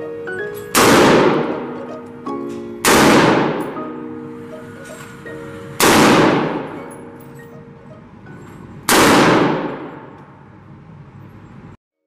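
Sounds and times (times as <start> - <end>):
rifle shots ringing indoors: 0.6 - 1.9, 2.5 - 3.9, 5.7 - 7.5, 8.8 - 10.6.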